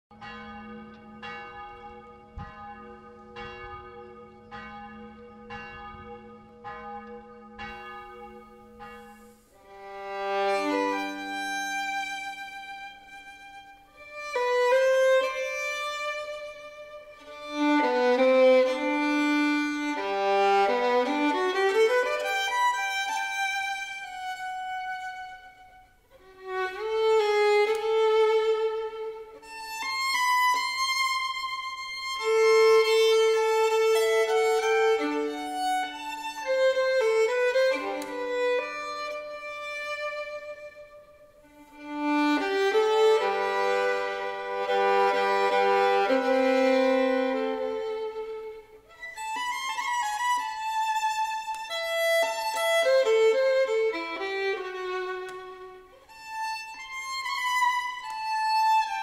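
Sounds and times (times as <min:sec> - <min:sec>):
church bell tolling: 0:00.1 - 0:11.3
solo violin playing slowly: 0:08.1 - 0:59.0.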